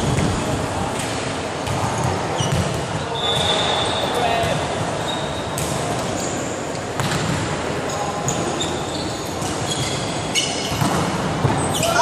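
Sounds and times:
sneakers squeaking on court: 1.6 - 12.0
volleyball hits: 7.0 - 7.6, 10.6 - 11.6.

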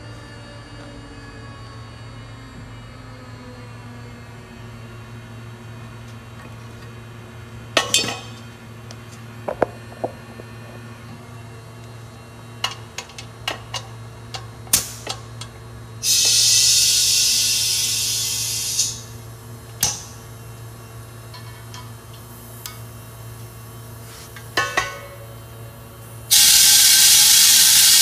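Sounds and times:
steady low hum: 0.1 - 16.0
compressed air hiss: 16.0 - 19.1, 26.3 - 28.0.

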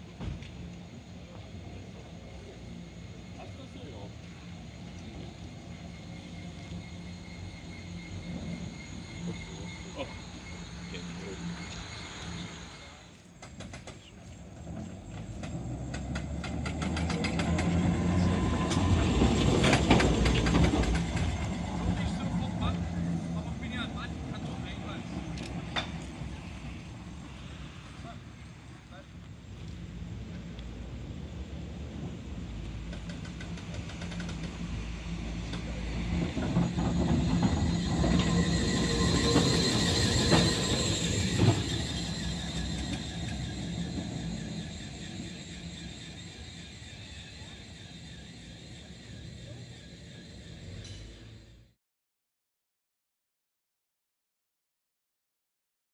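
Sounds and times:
electric tram passing: 0.0 - 51.8
wheel clicks and knocks on track: 13.4 - 14.1, 15.2 - 22.0, 32.8 - 34.7
wheel-on-rail clicks: 13.4 - 21.8, 32.9 - 34.8, 35.4 - 50.2.

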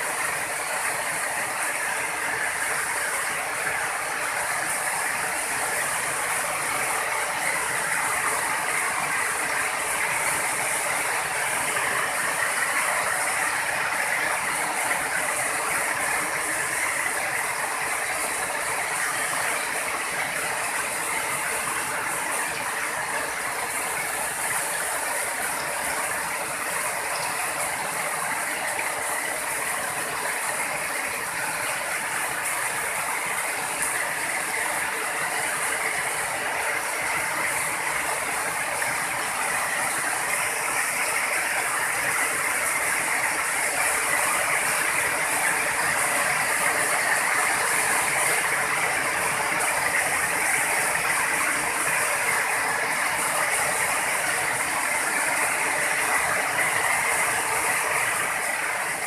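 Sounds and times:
heavy rain pouring on roofs: 0.0 - 59.0.

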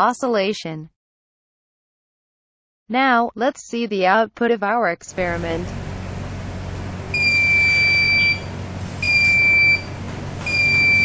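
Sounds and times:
piezo buzzer beeping: 7.1 - 11.0.

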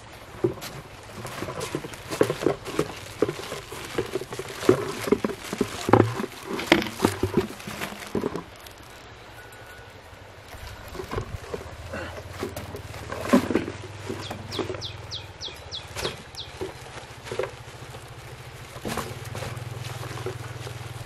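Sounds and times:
footsteps on grass: 0.0 - 9.0, 10.5 - 21.0
plastic pipe knocking: 0.4 - 8.4.

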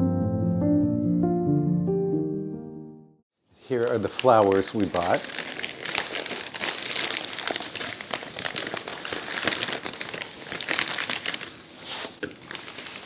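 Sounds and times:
paper wrapping crinkling: 3.8 - 13.0.

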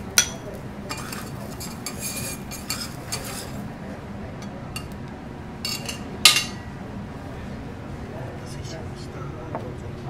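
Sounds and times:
cutlery clinking against plates: 0.1 - 3.6, 4.4 - 5.0, 5.6 - 6.7.

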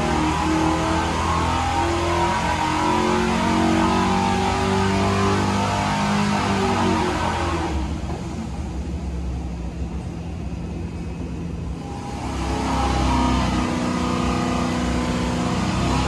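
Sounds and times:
engine running on dyno: 0.0 - 16.0.

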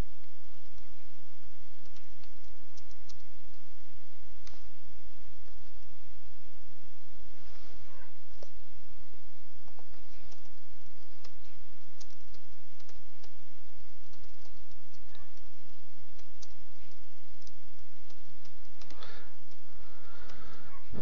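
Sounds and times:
low hum: 0.0 - 21.0
keyboard typing: 1.8 - 3.4, 9.6 - 13.4, 14.0 - 21.0.

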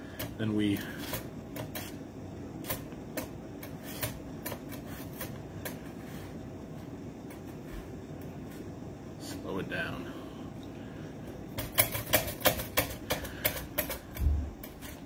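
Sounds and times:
potato slicing on a mandoline: 0.0 - 2.0.

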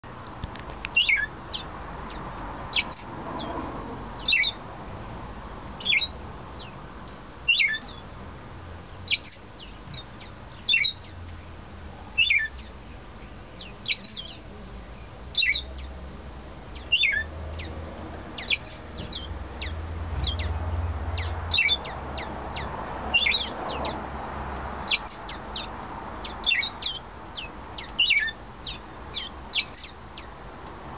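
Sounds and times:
parakeet singing high notes: 7.5 - 8.0, 16.8 - 17.3, 21.2 - 24.0.

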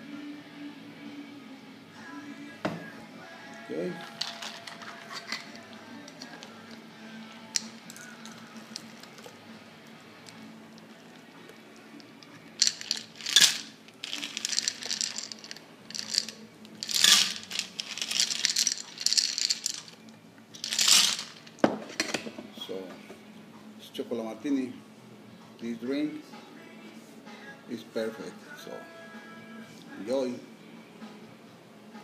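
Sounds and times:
ice rattling in cocktail shaker: 4.0 - 6.5, 12.6 - 20.0, 20.6 - 21.5.

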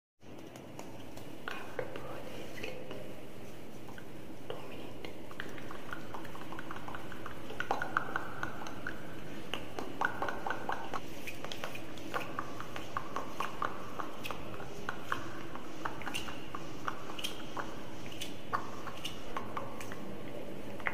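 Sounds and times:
wet mouth clicks and lip smacks: 5.0 - 20.1.

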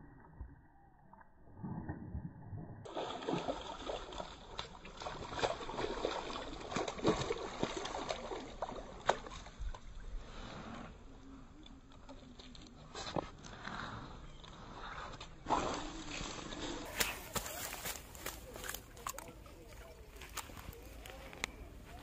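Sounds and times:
fish splashing at water surface: 2.9 - 9.6.

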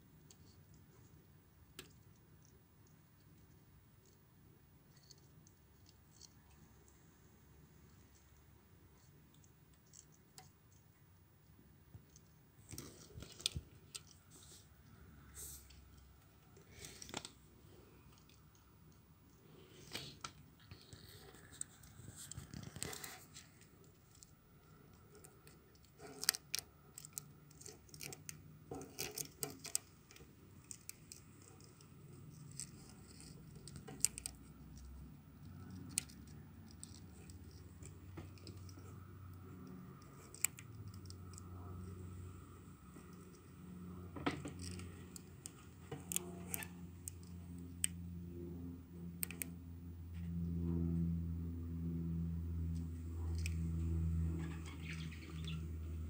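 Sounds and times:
faint low hum: 0.0 - 56.0
handling clicks and scrapes: 12.0 - 48.0.

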